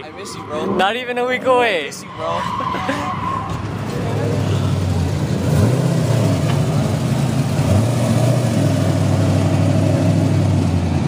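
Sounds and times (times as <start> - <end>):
car engine running at low revs: 3.6 - 11.0.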